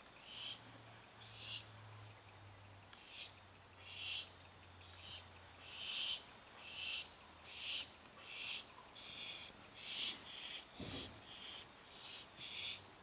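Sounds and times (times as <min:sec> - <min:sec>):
owl nestlings hissing: 0:03.0 - 0:04.3, 0:04.9 - 0:12.8.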